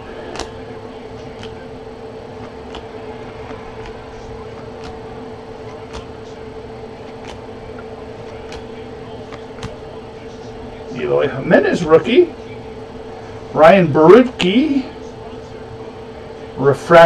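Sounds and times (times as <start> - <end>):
steady hum: 0.0 - 17.0
trading cards clicking: 0.2 - 0.7, 1.3 - 1.7, 2.4 - 6.3, 7.1 - 7.5, 8.2 - 9.8.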